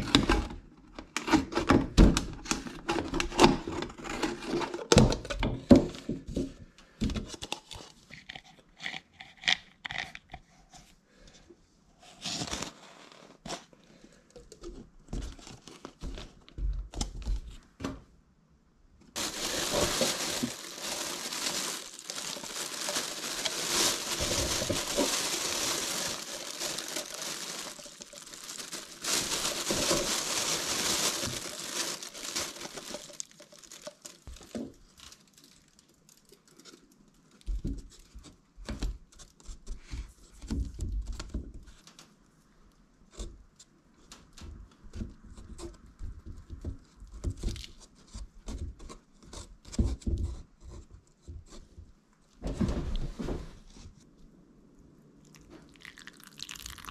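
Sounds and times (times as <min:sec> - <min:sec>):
plastic bag crinkling: 0:19.2 - 0:37.5, 0:55.3 - 0:56.9.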